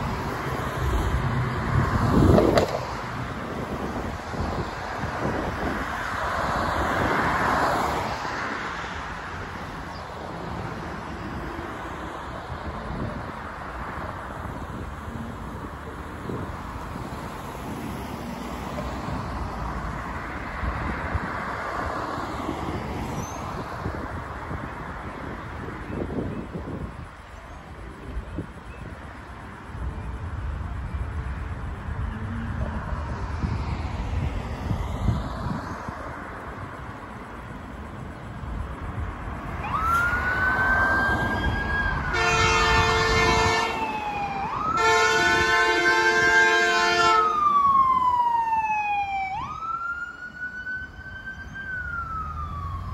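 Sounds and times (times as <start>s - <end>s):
distant rocket roar: 0.0s - 17.4s
emergency siren wailing: 39.4s - 52.9s
multi-note air horn blasts: 42.1s - 43.8s, 44.8s - 47.3s.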